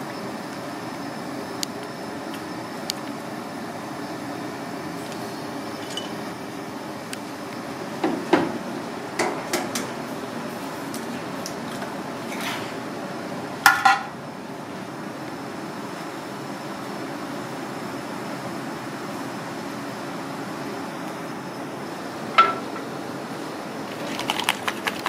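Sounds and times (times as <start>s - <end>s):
steady background hiss: 0.0s - 24.3s
utensils clinking on pot and dishes: 5.8s - 6.2s, 22.4s - 22.7s.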